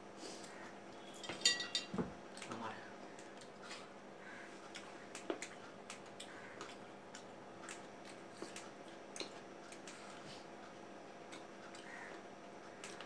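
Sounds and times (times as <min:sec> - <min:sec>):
faint steady hum: 0:00.0 - 0:13.0
watermelon being chewed: 0:04.6 - 0:13.0.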